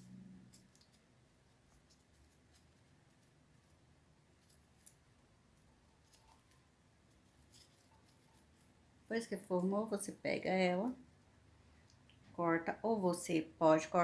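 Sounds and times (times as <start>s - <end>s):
ribbon rustling and ticking: 0.0s - 10.2s.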